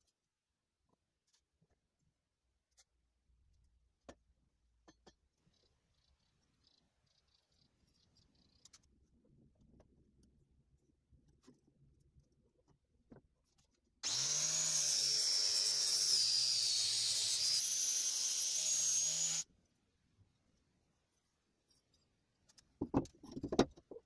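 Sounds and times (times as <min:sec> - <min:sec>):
angle grinder grinding metal: 0:14.0 - 0:19.4.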